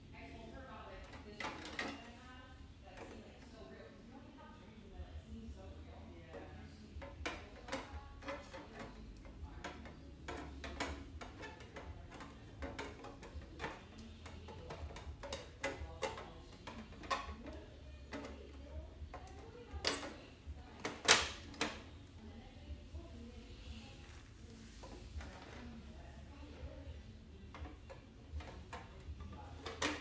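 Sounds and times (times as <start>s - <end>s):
acrylic panels clicking and tapping: 0.9s - 2.2s, 6.3s - 22.0s, 27.3s - 30.0s.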